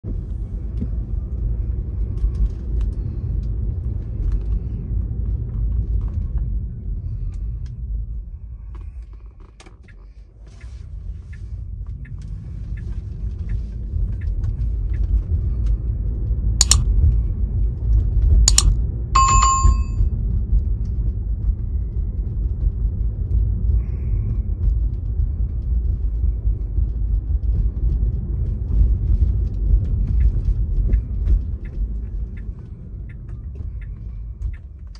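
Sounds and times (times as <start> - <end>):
car road and engine rumble: 0.0 - 34.9
sharp clicks: 16.6 - 16.8, 18.5 - 19.9
short bell-like ding: 18.5 - 20.0.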